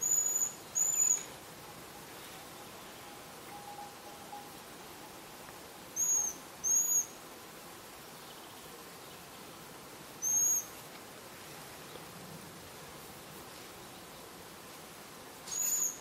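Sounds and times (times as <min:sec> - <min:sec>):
young owl high-pitched whistles: 0:00.0 - 0:01.3, 0:05.9 - 0:07.2, 0:10.2 - 0:10.7, 0:15.5 - 0:16.0.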